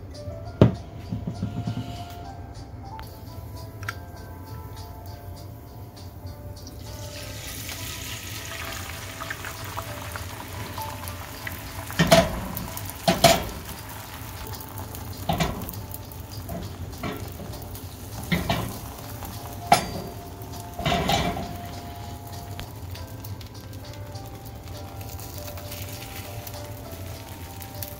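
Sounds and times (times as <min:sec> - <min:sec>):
eggs sizzling in skillet: 0:03.0 - 0:27.9
utensils clinking against pan: 0:06.0 - 0:27.9.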